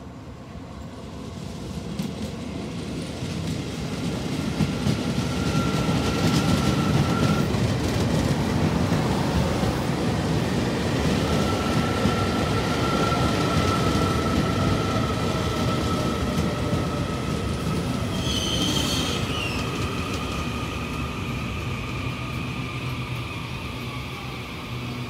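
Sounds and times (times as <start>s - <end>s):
electric train whine: 0.0s - 25.0s
train rolling noise: 0.0s - 25.0s
brief high squeal: 5.2s - 7.6s, 18.1s - 19.8s.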